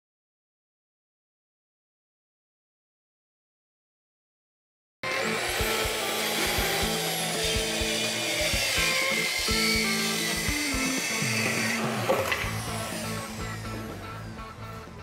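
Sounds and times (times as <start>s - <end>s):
background music: 5.0s - 15.0s
track saw cutting wood: 5.0s - 15.0s.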